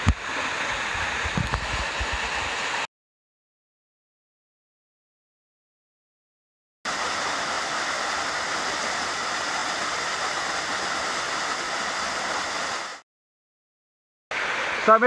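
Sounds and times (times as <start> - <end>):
waterfall rushing into pool: 0.0 - 2.9, 6.9 - 13.0, 14.3 - 15.0.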